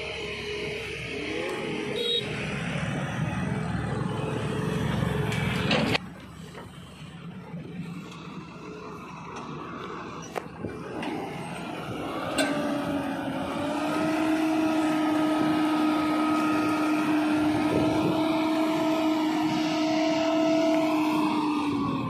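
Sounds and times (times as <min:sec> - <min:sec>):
truck diesel engine: 0:00.0 - 0:22.0
hydraulic hoist drone: 0:08.0 - 0:22.0.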